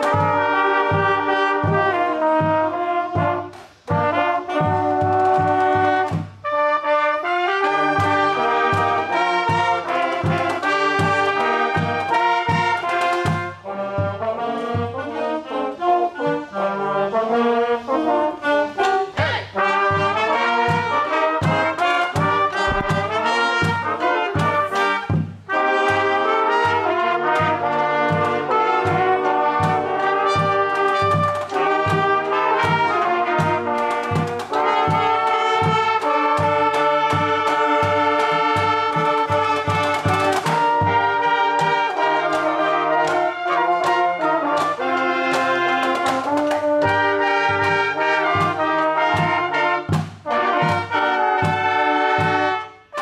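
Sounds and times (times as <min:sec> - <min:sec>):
brass and saxophone horn section: 0:00.0 - 0:53.0
steady low beat: 0:22.6 - 0:23.4.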